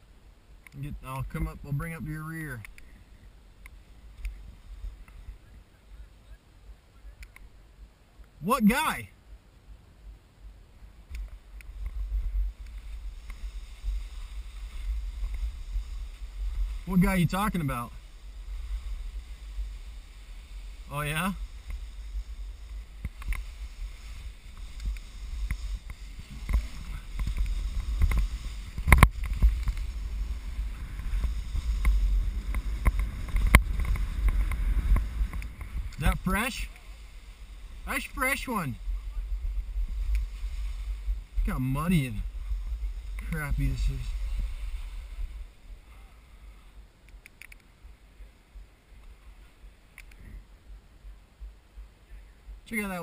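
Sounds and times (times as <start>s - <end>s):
ski clacks: 0.6s - 6.1s, 11.0s - 47.7s
skis swishing through snow: 3.0s - 6.3s, 10.9s - 46.8s
wind buffeting microphone: 10.8s - 45.9s
sharp clicks: 47.0s - 47.7s, 49.9s - 50.3s.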